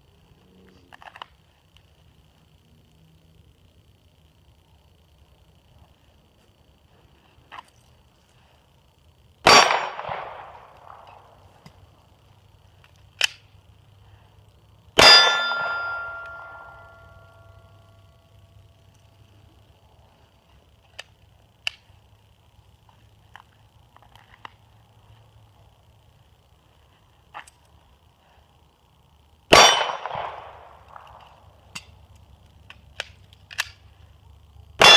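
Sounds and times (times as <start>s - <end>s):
pistol shots: 9.4s - 11.0s, 15.0s - 17.0s, 29.5s - 31.1s
steel target ringing: 15.0s - 17.6s
sharp metallic click: 29.6s - 33.9s.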